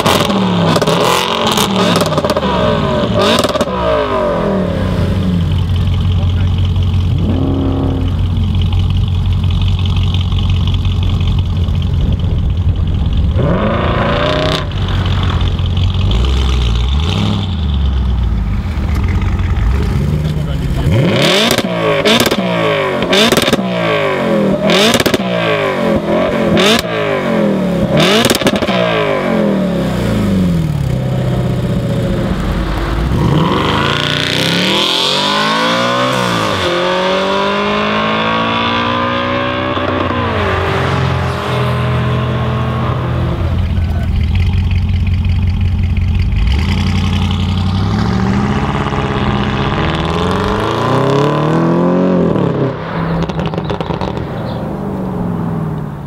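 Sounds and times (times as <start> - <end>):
car engine revving: 0.0 - 56.0
exhaust pops and crackles: 5.4 - 22.4, 24.8 - 25.3, 43.4 - 50.9, 53.2 - 54.6
car accelerating through gears: 19.7 - 31.6, 32.2 - 44.0, 46.4 - 55.8.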